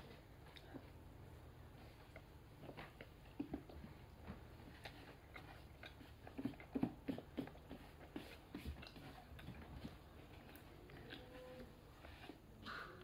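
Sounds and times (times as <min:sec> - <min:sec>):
person chewing: 0:04.5 - 0:12.9.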